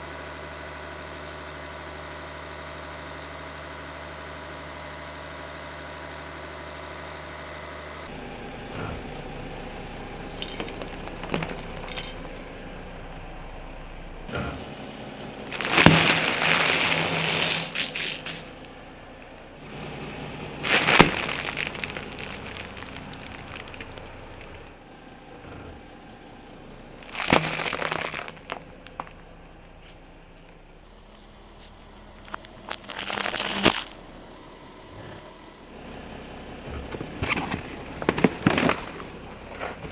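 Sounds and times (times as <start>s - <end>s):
car engine running quietly: 0.0s - 39.9s
snack bags popping and crackling: 10.3s - 12.4s, 15.5s - 18.6s, 20.6s - 24.7s, 27.0s - 29.2s, 32.2s - 34.0s.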